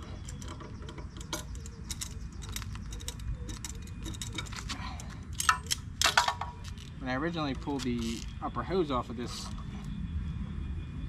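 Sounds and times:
low steady rumble: 0.0s - 11.0s
hand ratchet clicking: 0.2s - 6.1s.

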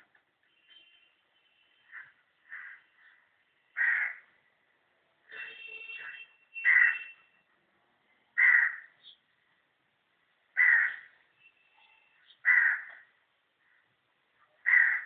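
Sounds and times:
bird harsh calls: 6.0s - 7.2s, 10.6s - 11.2s, 11.8s - 13.0s.

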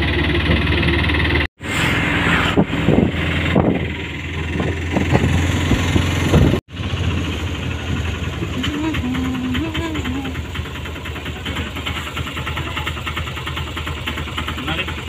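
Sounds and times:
wind and road noise: 0.0s - 9.1s
auto-rickshaw engine running: 0.0s - 15.0s.

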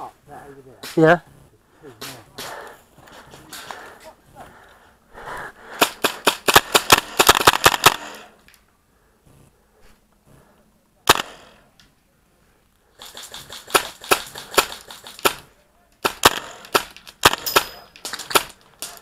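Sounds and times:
airsoft rifle shots: 5.8s - 8.4s, 11.0s - 11.6s, 13.0s - 19.0s.

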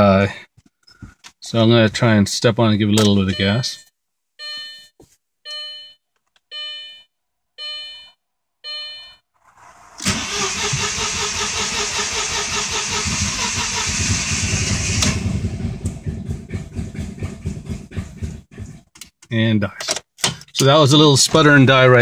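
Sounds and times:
dashboard warning chimes: 3.0s - 9.2s
car engine cranking: 9.4s - 19.0s
engine sputtering: 10.0s - 18.8s.

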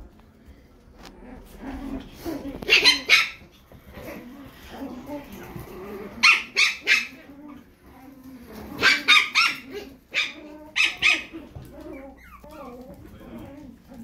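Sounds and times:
puppies yapping: 2.4s - 3.5s, 6.1s - 14.0s.

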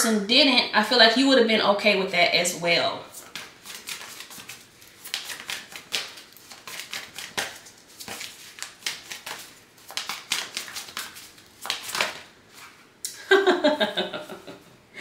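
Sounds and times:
cards being shuffled: 3.1s - 12.8s.

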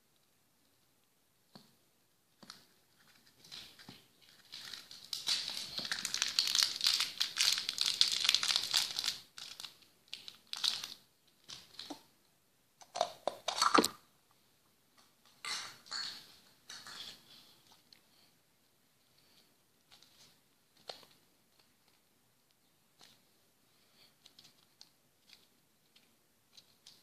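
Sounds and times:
plastic bag crinkling: 3.0s - 12.0s.

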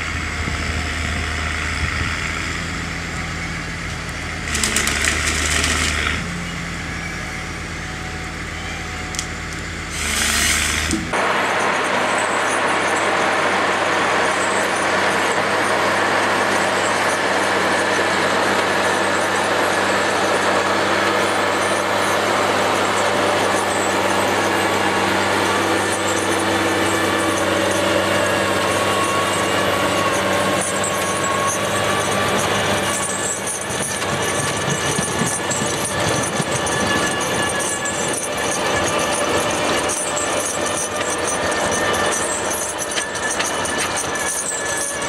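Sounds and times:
diesel engine under load: 0.0s - 45.0s
high squeal: 0.0s - 45.0s.

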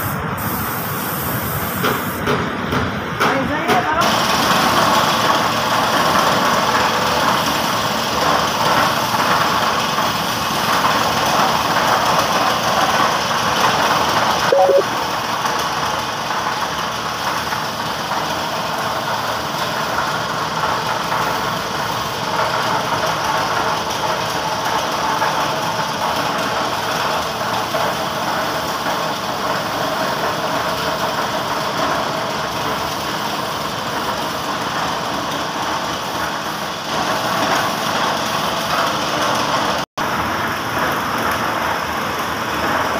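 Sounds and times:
spray gun hissing: 0.0s - 2.2s
air compressor running: 0.0s - 2.8s.

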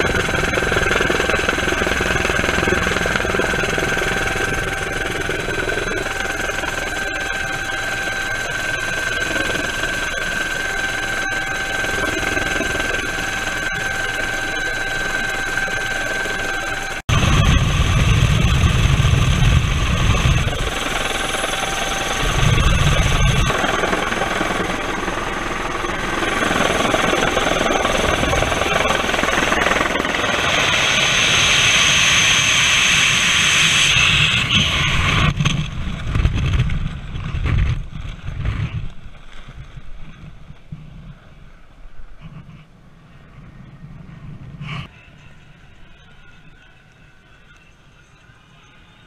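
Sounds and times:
helicopter engine and rotor whine: 0.0s - 37.9s
loud low rumble: 17.1s - 21.3s.

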